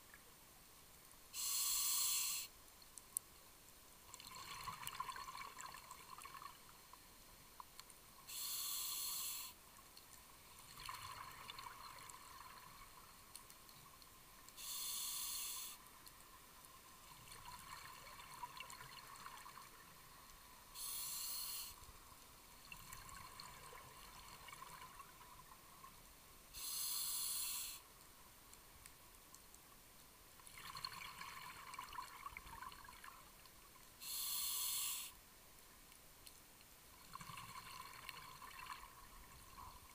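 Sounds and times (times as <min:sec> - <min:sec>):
regulator inhalation hiss: 0:01.3 - 0:02.5, 0:08.3 - 0:09.6, 0:14.6 - 0:15.8, 0:20.8 - 0:21.8, 0:26.5 - 0:27.8, 0:34.0 - 0:35.2
crackling exhaust bubbles: 0:04.1 - 0:06.7, 0:10.4 - 0:13.6, 0:30.4 - 0:33.5, 0:37.0 - 0:39.9.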